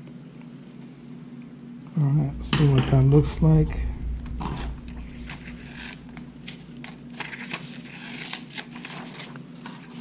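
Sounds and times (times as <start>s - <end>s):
paper rustling and crinkling: 4.5s - 10.0s.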